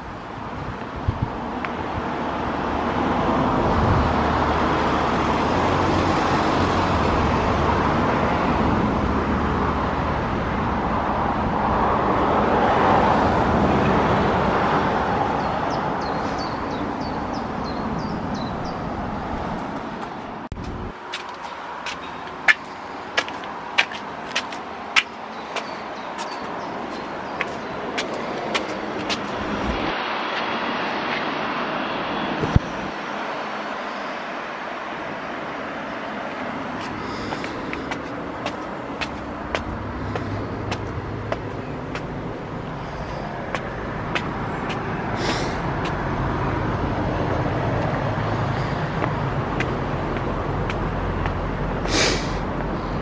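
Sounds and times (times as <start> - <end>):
road traffic rumble: 0.0 - 53.0.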